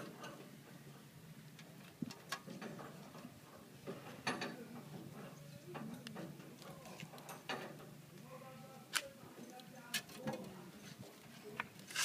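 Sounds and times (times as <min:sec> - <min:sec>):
clicks and knocks on steel frame: 0:02.0 - 0:07.9.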